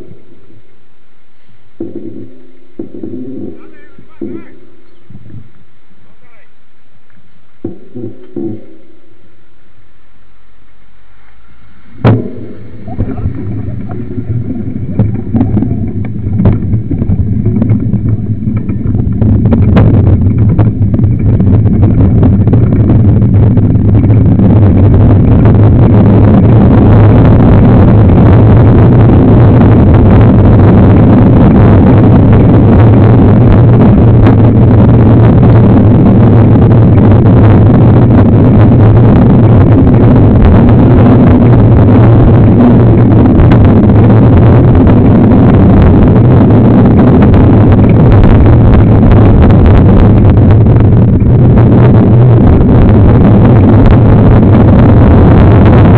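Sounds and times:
wind rumble: 0.0 - 55.9
knocks: 1.8 - 4.6, 7.6 - 8.9
bike rattling on dirt road: 12.1 - 55.9.

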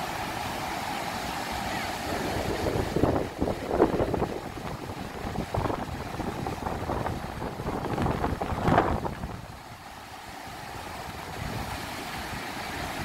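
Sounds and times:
surf breaking on beach: 0.0 - 13.0
wind buffeting microphone: 2.1 - 9.7.

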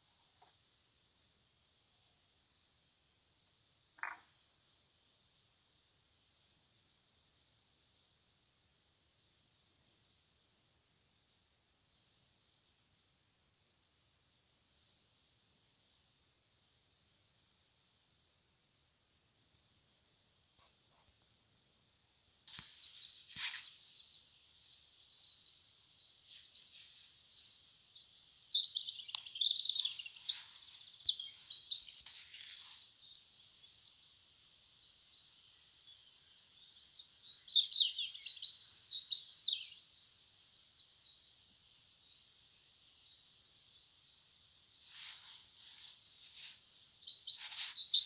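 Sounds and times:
small birds chirping: 3.9 - 5.2, 22.4 - 48.0.

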